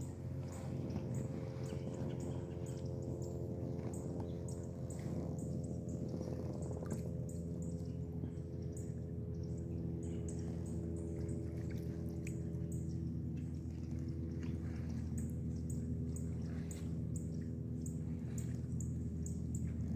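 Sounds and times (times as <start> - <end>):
steady low hum: 0.0 - 19.9
water dripping off paddle: 11.1 - 17.5.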